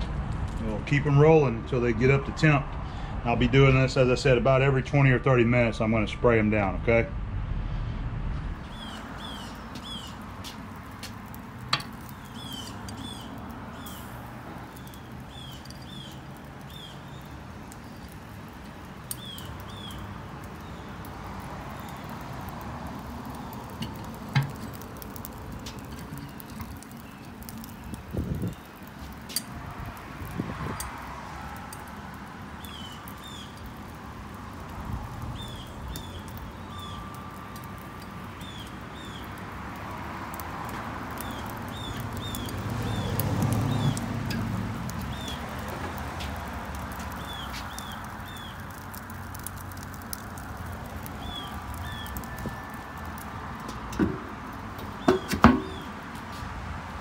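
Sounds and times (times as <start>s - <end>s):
bird chirping: 8.6s - 10.3s, 12.0s - 14.1s, 14.7s - 18.1s, 19.2s - 20.9s, 32.6s - 33.6s, 35.3s - 37.2s, 38.4s - 39.3s, 41.2s - 44.0s, 47.2s - 48.6s.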